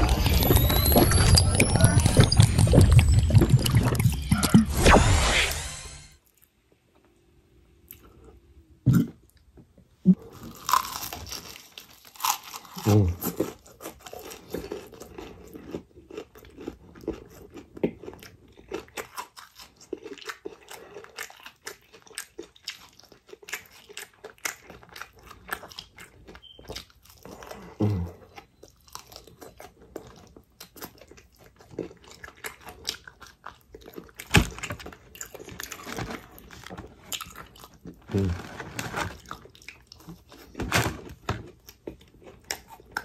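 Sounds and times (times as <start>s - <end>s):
chewing crispy fried chicken: 10.1s - 43.0s.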